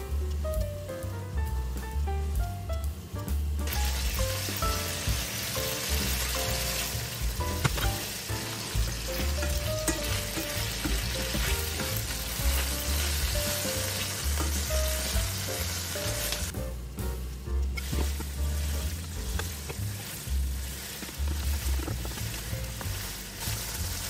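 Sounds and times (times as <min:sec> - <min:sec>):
light background music: 0:00.0 - 0:24.0
meat sizzling in frying pan: 0:00.0 - 0:24.0
spatula scraping and knocking: 0:08.8 - 0:14.8.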